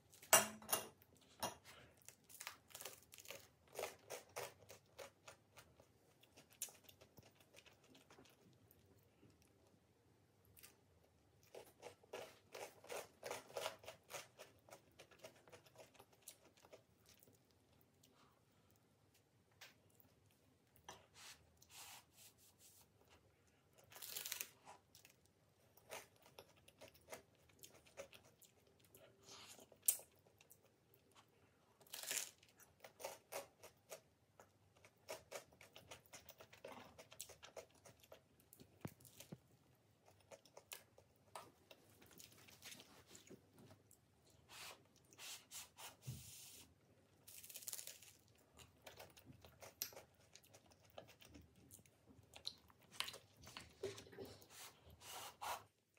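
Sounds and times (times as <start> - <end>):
chewing: 1.0 - 9.8, 10.4 - 21.8, 23.0 - 45.3, 47.0 - 54.9
crunchy bites of toasted bread: 47.2 - 48.4.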